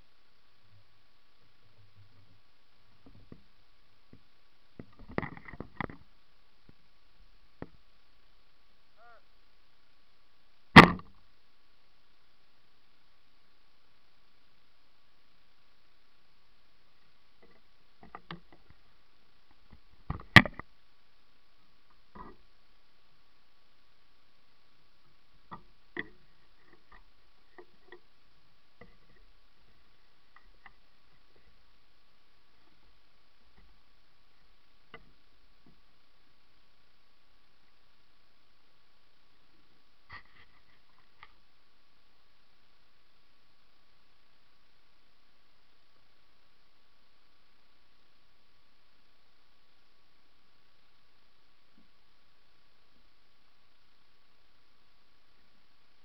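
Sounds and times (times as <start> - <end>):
steady hiss: 0.0 - 56.0
faint chirp: 8.9 - 9.4.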